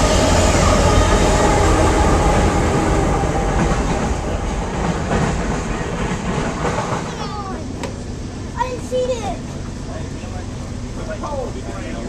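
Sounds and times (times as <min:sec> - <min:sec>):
freight train passing: 0:00.0 - 0:12.0
wheels clicking over rail joints: 0:03.6 - 0:10.3.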